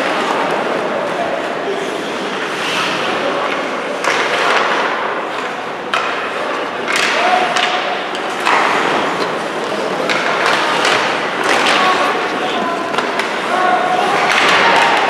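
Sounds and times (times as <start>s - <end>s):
sticks and puck clacking: 0.0s - 15.0s
skate blades scraping ice: 0.2s - 3.7s.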